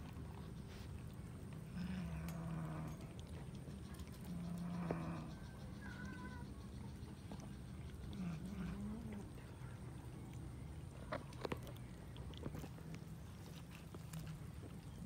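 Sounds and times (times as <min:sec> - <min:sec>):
cats chewing and tearing meat: 0:00.0 - 0:15.0
cat growling: 0:01.7 - 0:03.3, 0:08.1 - 0:09.4.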